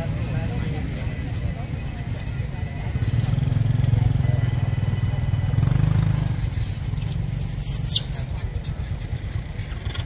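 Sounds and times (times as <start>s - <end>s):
baby monkey squealing: 7.0s - 8.5s.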